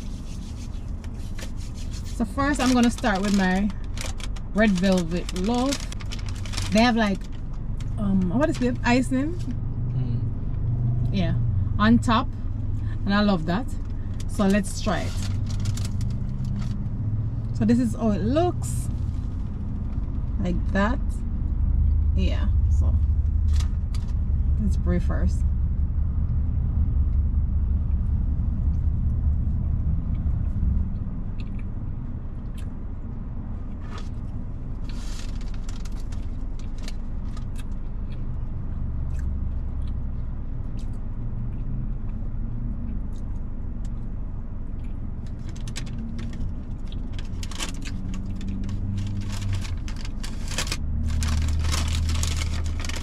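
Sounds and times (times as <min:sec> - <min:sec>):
car engine idling: 0:00.0 - 0:41.1, 0:42.9 - 0:53.0
clicks and rustles of food handling: 0:00.7 - 0:08.6, 0:13.8 - 0:16.8, 0:34.8 - 0:38.3, 0:44.7 - 0:53.0.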